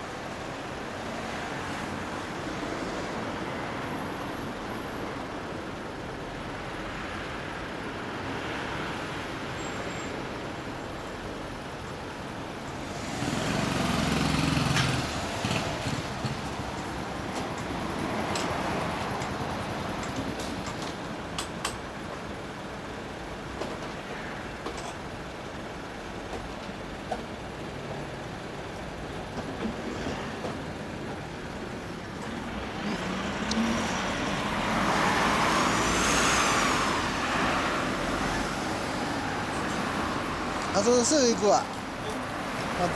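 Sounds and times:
road traffic noise: 0:00.0 - 0:42.9
vehicle passing close by: 0:12.9 - 0:16.4, 0:32.4 - 0:40.8.

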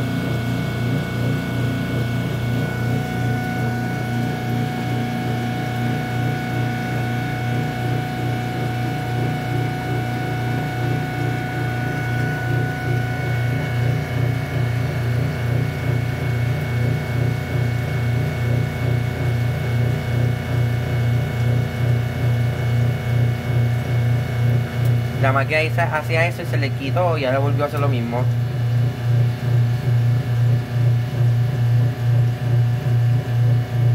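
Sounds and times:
washing machine hum: 0:00.0 - 0:33.9
washing machine throbbing pulse: 0:00.0 - 0:33.9.

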